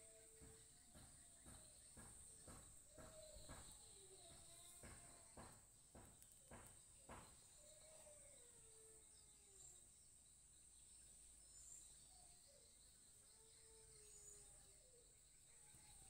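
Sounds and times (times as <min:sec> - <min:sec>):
soft irregular taps: 0:00.4 - 0:07.4.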